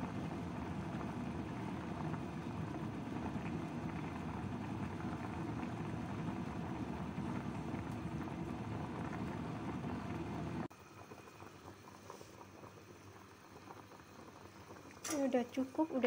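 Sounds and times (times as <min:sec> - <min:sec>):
soup boiling and bubbling: 0:00.0 - 0:16.0.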